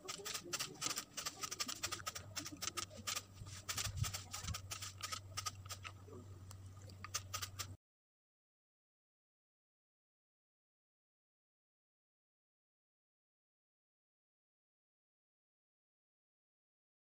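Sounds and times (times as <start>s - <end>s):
low steady hum: 0.0s - 7.8s.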